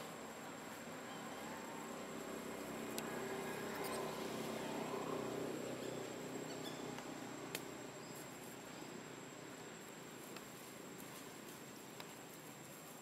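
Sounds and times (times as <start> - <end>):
low drone: 1.0 - 8.0.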